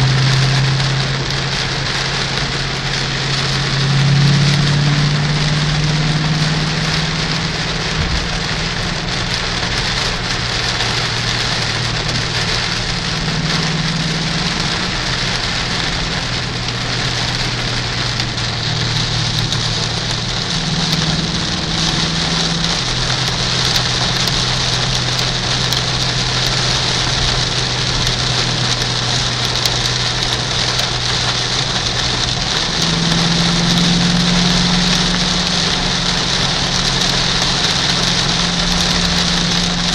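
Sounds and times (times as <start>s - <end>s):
car engine droning: 0.0s - 39.9s
heavy rain on car windshield: 0.0s - 39.9s
tyres on wet road: 0.0s - 39.9s.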